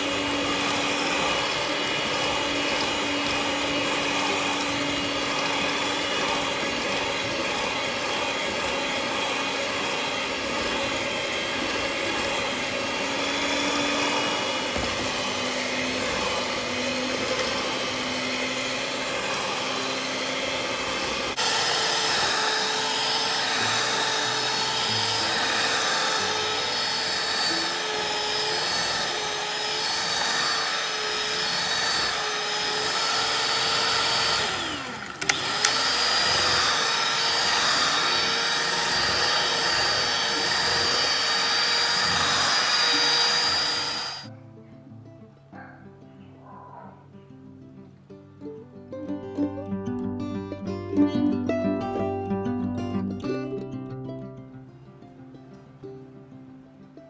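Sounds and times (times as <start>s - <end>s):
electric hand mixer kneading dough: 0.0s - 44.3s.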